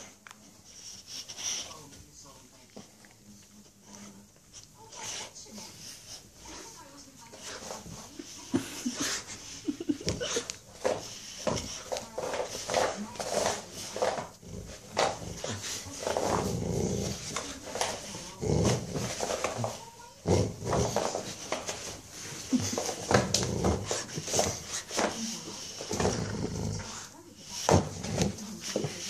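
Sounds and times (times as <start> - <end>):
dog growling in play: 12.7 - 21.7, 22.5 - 24.8, 25.8 - 27.1.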